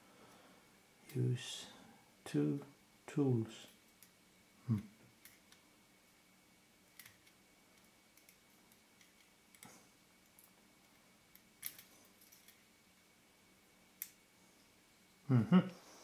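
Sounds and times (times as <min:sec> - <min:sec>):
short vocal sound: 0:04.6 - 0:05.0.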